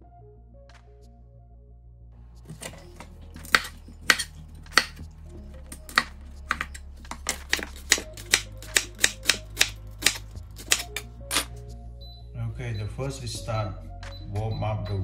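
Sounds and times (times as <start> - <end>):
knife chopping on cutting board: 2.5 - 5.0, 5.8 - 11.5.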